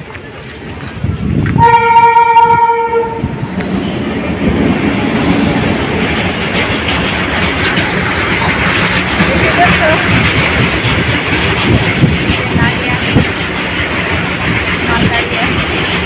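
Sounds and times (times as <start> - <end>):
freight train rumbling past: 0.0 - 16.0
train horn blast: 1.6 - 3.4.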